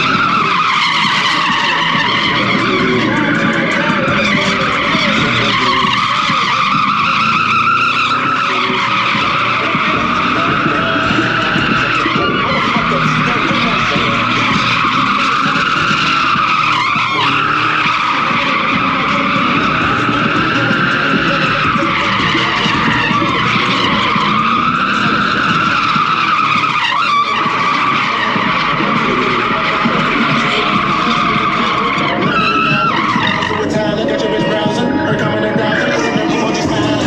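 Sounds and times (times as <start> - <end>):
car engine: 0.0 - 37.0
tyres squealing: 0.0 - 37.0.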